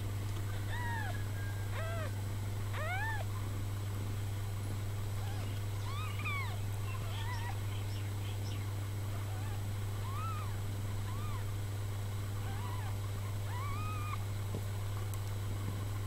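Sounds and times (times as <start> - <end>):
steady low hum: 0.0 - 16.0
kittens mewing: 1.8 - 2.1, 2.7 - 3.3, 5.2 - 7.6, 9.3 - 11.5, 12.4 - 14.2.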